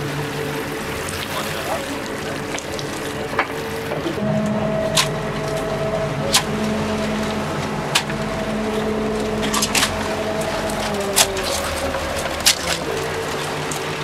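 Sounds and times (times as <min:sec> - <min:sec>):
machinery hum: 0:00.0 - 0:14.0
crabs and net clattering on wood: 0:10.7 - 0:14.0.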